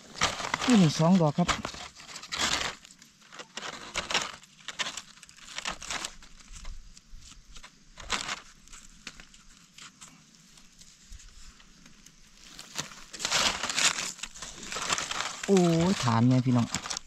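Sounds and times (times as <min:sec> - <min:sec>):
rustling of dry leaf litter: 0:00.0 - 0:17.0
knife digging in soil: 0:12.4 - 0:17.0.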